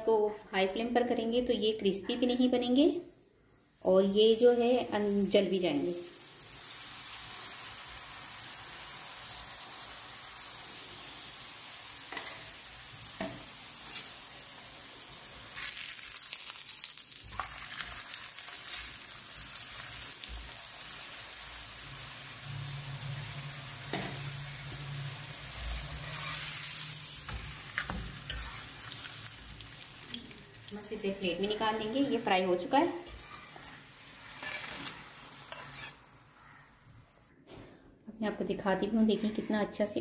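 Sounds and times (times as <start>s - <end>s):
flatbread sizzling in oil: 3.6s - 36.6s
spatula tapping and scraping: 27.2s - 28.7s, 34.4s - 36.0s.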